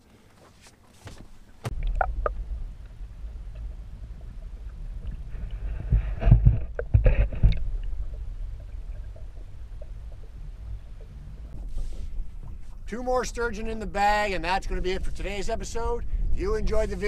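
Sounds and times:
water sloshing thumps: 0:00.8 - 0:12.9
muffled underwater rumble: 0:01.7 - 0:17.0.

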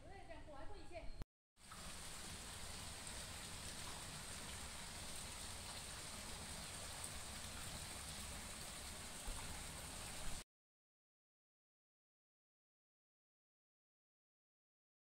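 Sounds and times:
fountain splashing into pool: 0:01.6 - 0:10.4.

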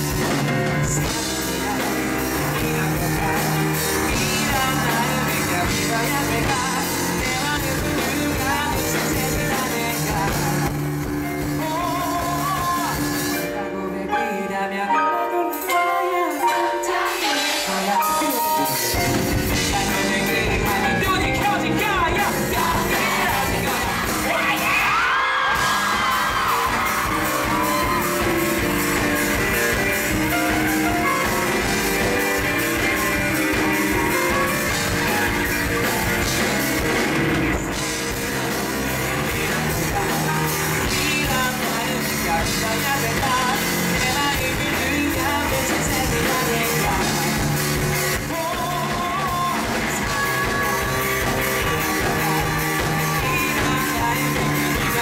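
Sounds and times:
live rock band playing: 0:00.0 - 0:55.0
man singing into microphone: 0:00.7 - 0:25.2, 0:39.3 - 0:55.0.

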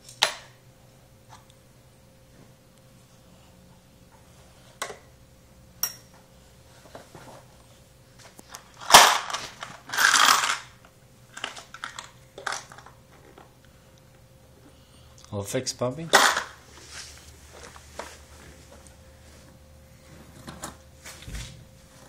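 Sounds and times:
loose tools clattering: 0:16.1 - 0:16.6.

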